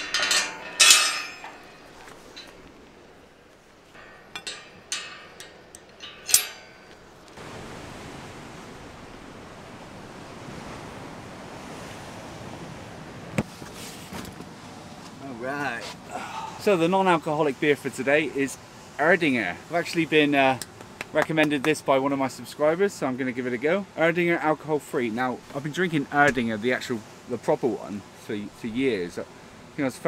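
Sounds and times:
metal gate clanking: 0.0s - 7.4s
waves breaking on breakwater: 6.8s - 30.0s.

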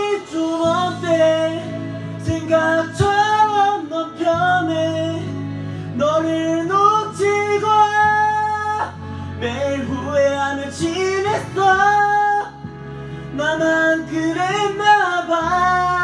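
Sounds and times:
karaoke backing track: 0.0s - 16.0s
man singing karaoke: 0.0s - 16.0s.

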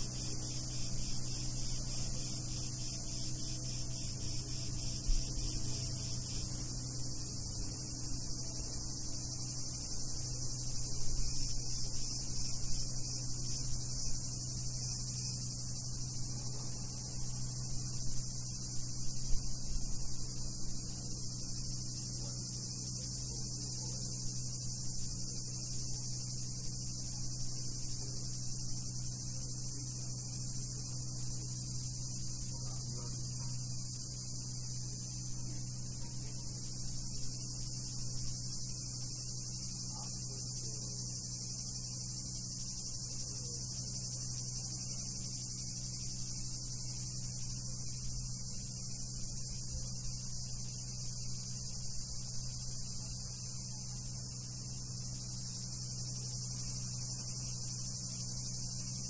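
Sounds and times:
cicadas buzzing: 0.0s - 59.0s.

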